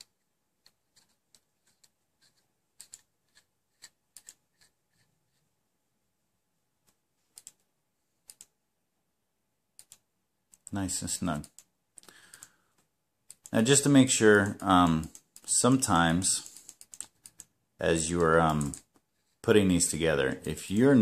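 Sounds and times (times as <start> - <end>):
small clicks of metal parts: 16.4 - 17.5.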